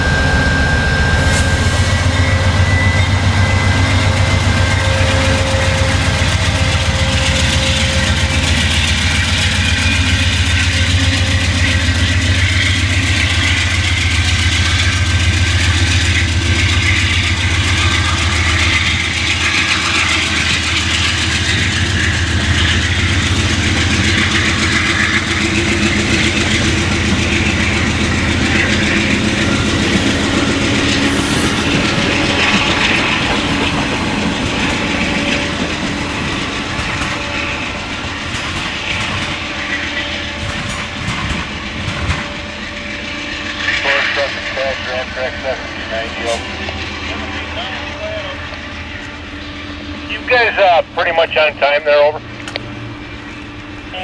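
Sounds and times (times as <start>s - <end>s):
diesel locomotive engine drone: 0.0s - 54.0s
train wheels clattering over rails: 1.2s - 43.8s.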